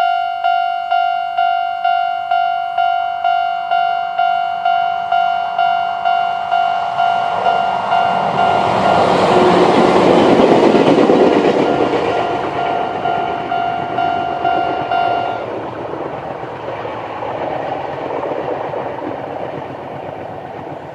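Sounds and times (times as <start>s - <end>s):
level crossing alarm clanging: 0.0s - 15.5s
train wheels rushing on rails: 0.0s - 20.9s.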